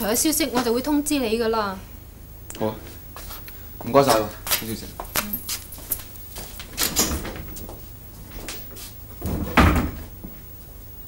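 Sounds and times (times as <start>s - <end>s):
door closing with heavy thud: 6.7s - 7.8s, 9.2s - 10.2s.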